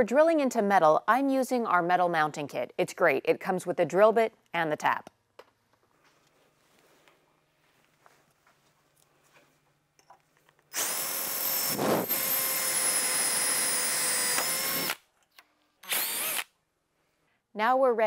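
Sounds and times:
cordless drill boring into metal: 10.7s - 15.0s, 15.8s - 16.5s.

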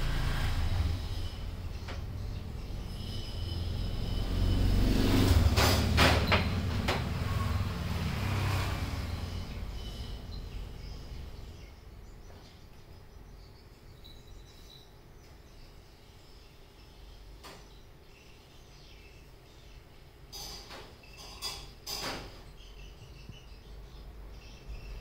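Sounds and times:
vehicle passing rumble: 0.0s - 12.3s.

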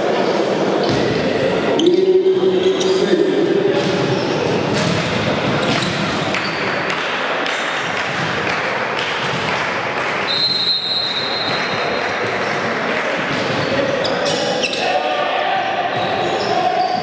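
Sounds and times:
echoing crowd din: 0.0s - 17.0s
referee's whistle blast: 10.3s - 11.6s.

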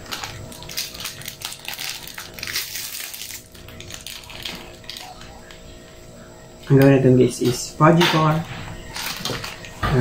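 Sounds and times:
plastic wrapper crinkling: 0.0s - 5.7s, 8.9s - 9.7s.

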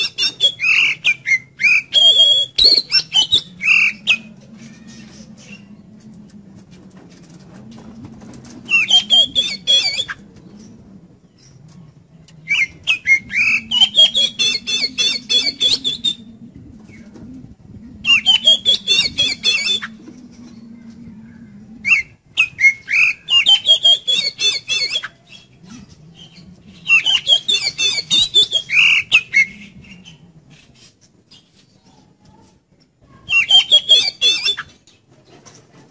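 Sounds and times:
bird singing chatter and whistles: 0.0s - 5.8s, 8.7s - 10.7s, 12.4s - 16.3s, 18.1s - 20.0s, 21.9s - 32.1s, 33.3s - 34.8s.

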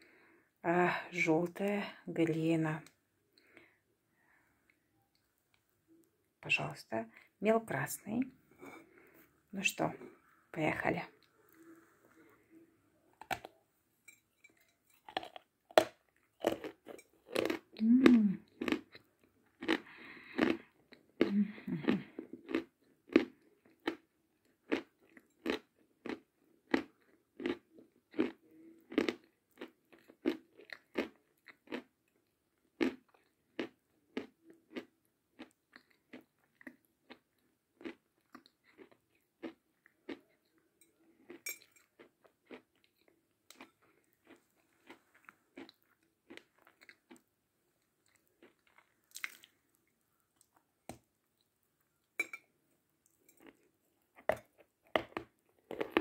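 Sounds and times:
chewing chalk crunches: 13.2s - 13.6s, 14.6s - 24.0s, 53.0s - 56.0s.

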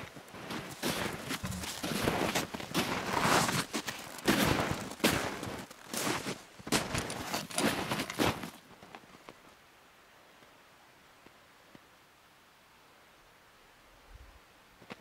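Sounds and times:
snow crunching under feet: 0.0s - 8.5s.

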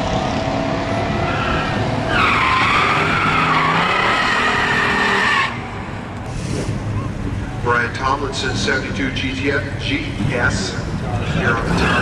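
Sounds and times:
tyres squealing: 1.3s - 5.7s.

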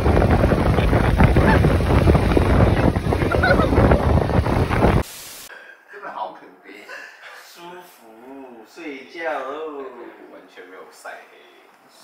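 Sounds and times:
wind buffeting microphone: 0.0s - 5.0s
faint laughter: 0.8s - 1.8s, 3.1s - 4.1s.

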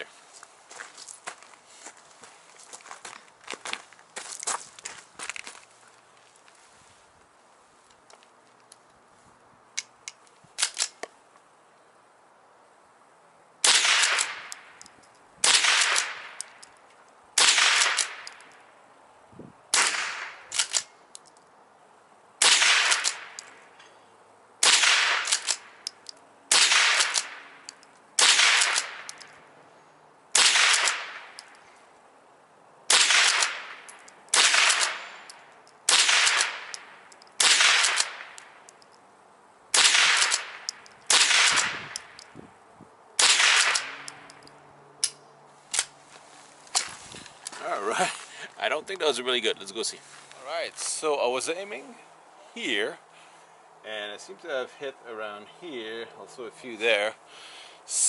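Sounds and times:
rifle shots with echo: 13.6s - 14.6s, 15.4s - 16.4s, 17.4s - 18.3s, 19.7s - 20.8s, 22.4s - 23.4s, 24.6s - 25.8s, 26.5s - 27.6s, 28.2s - 29.2s, 30.3s - 31.4s, 32.9s - 35.2s, 35.9s - 38.4s, 39.7s - 42.1s, 43.2s - 44.1s.

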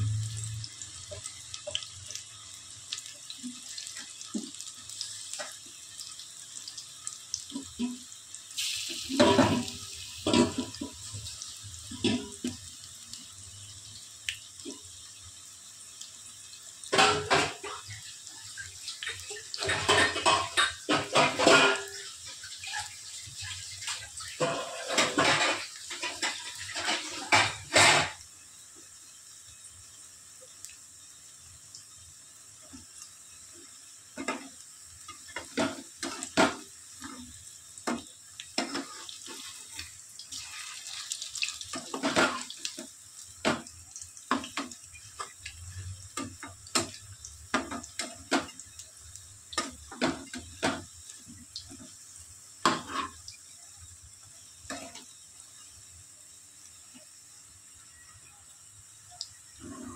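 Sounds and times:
kitchen utensils clinking: 19.6s - 22.0s, 24.4s - 28.2s.

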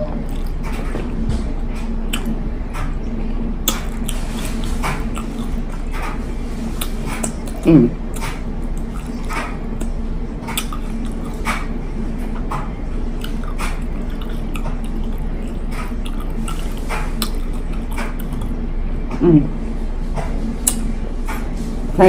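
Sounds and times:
steady low hum: 0.0s - 22.0s
wet mouth sounds: 0.2s - 1.2s, 2.0s - 2.9s, 3.6s - 12.4s, 13.1s - 18.6s, 20.6s - 21.0s
crunchy chewing: 0.2s - 3.0s, 3.6s - 18.6s.

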